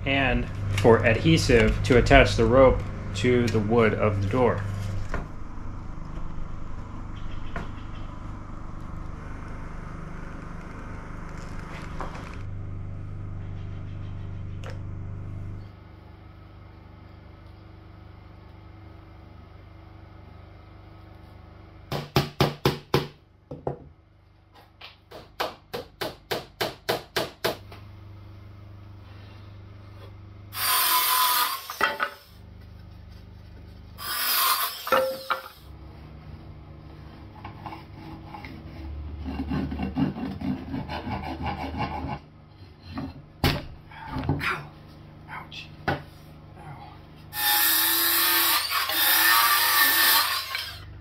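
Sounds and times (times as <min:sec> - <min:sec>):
circular saw cutting a board: 0:30.5 - 0:32.4, 0:34.0 - 0:35.7, 0:47.3 - 0:50.9.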